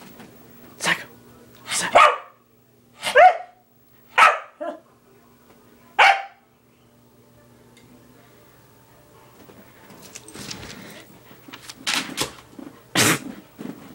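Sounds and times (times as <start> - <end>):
small dog barking: 1.8 - 2.4, 3.0 - 4.8, 6.0 - 6.4.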